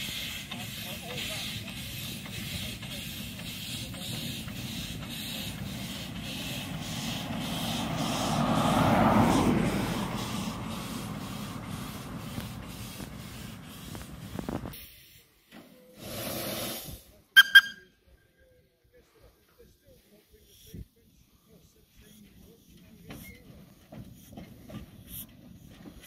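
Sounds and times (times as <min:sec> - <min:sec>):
steam locomotive chuffing: 0:00.0 - 0:14.7
car passing: 0:03.1 - 0:14.4.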